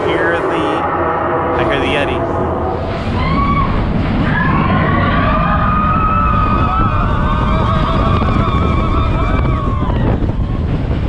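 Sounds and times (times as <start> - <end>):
high wavering note: 0.0 - 4.0
roller coaster rumbling on track: 0.0 - 11.0.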